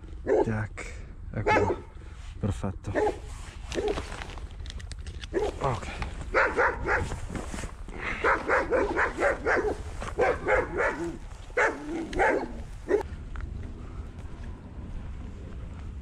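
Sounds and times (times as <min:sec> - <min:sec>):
dog barking: 0:00.2 - 0:00.5, 0:01.4 - 0:01.9, 0:02.9 - 0:04.0, 0:05.3 - 0:05.7, 0:06.3 - 0:07.1, 0:08.2 - 0:13.1.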